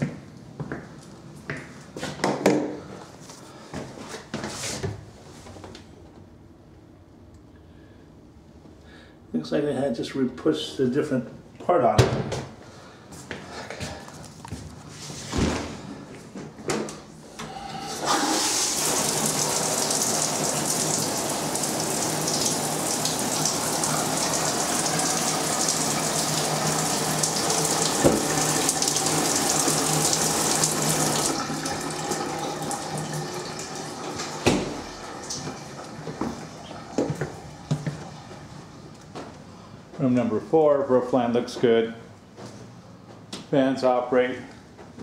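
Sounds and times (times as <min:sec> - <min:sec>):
shower spraying on tiles: 0:18.0 - 0:33.2.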